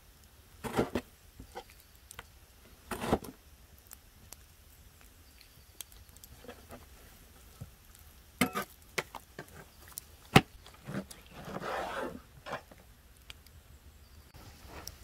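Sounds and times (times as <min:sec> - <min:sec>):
rustling scrape: 0:00.6 - 0:01.7, 0:02.9 - 0:03.3, 0:10.8 - 0:12.8.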